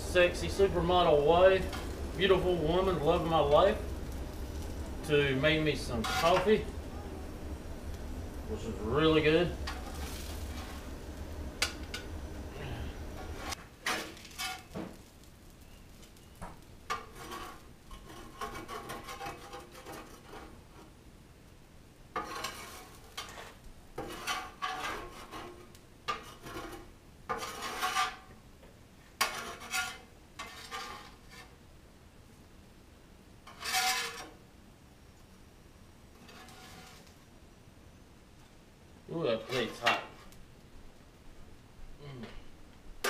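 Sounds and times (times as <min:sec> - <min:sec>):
metal spatula scraping griddle: 0:00.1 - 0:15.2, 0:16.8 - 0:21.0, 0:22.1 - 0:28.4, 0:29.2 - 0:31.6, 0:33.4 - 0:34.4, 0:36.1 - 0:37.2, 0:39.2 - 0:40.4.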